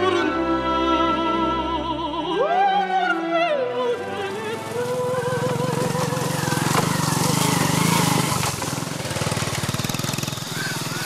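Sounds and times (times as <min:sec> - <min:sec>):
background music sung note: 0:00.0 - 0:06.7
small motorcycle engine running: 0:04.0 - 0:11.0.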